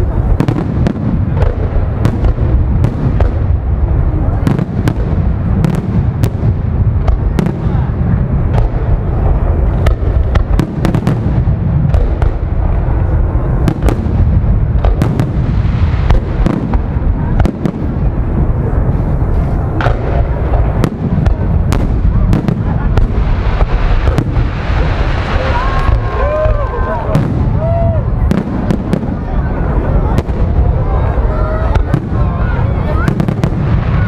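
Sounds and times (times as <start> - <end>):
fireworks booming rumble: 0.0 - 34.0
fireworks sharp bangs: 0.0 - 34.0.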